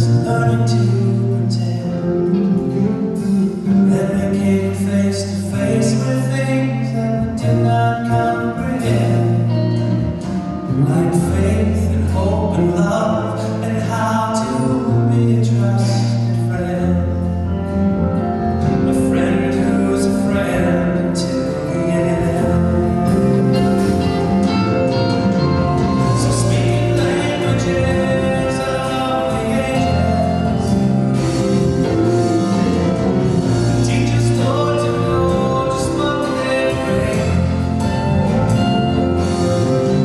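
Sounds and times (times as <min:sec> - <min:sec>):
person singing: 0:00.0 - 0:40.0
sustained chords: 0:17.2 - 0:40.0.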